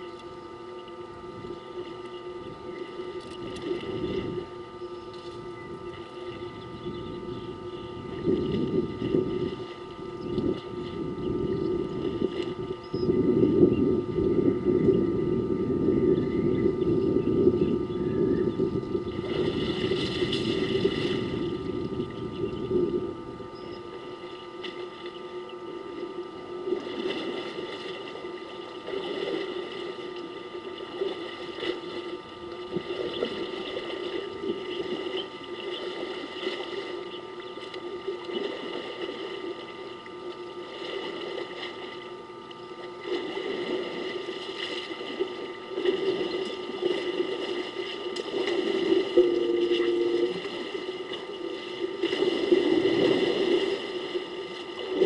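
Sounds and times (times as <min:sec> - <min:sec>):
faint steady hum: 0:00.0 - 0:55.0
elephants splashing in water: 0:52.0 - 0:55.0.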